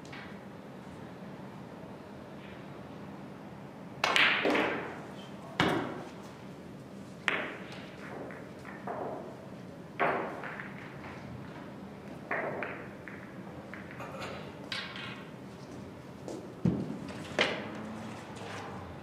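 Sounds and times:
cue striking ball: 4.0 - 5.0, 7.2 - 9.4, 10.0 - 11.2, 12.2 - 15.3
pool balls clacking: 4.0 - 5.0, 7.2 - 15.4.

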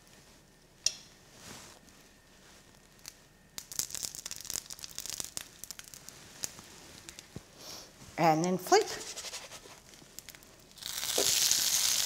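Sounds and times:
pancakes sizzling in butter: 9.1 - 12.0.

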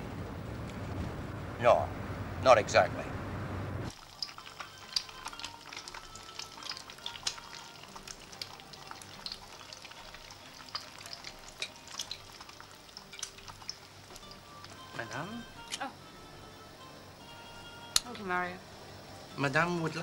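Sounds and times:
car interior rumble: 0.0 - 3.9
food sizzling in a frying pan: 3.9 - 17.2.

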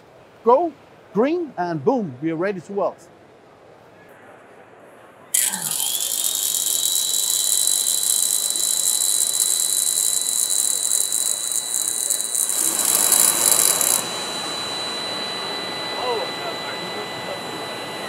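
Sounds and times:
welding arc hissing: 5.4 - 14.5
thin high whine: 5.4 - 18.0.

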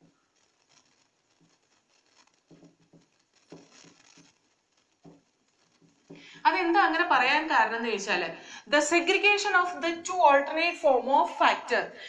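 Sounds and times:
marker scratching on whiteboard: 1.3 - 6.9.

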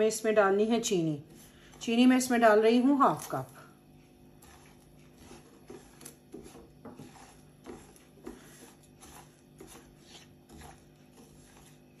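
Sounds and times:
spatula scraping in frying pan: 4.4 - 12.0.

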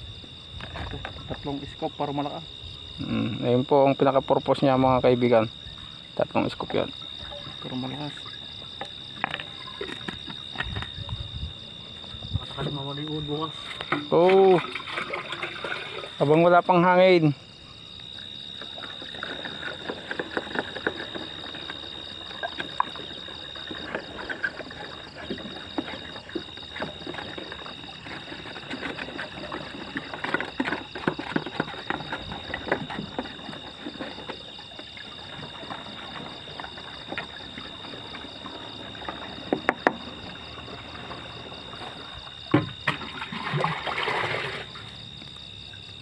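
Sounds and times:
high insect trill: 0.0 - 46.0
liquid sloshing in plastic tank: 4.7 - 16.5, 18.2 - 46.0.

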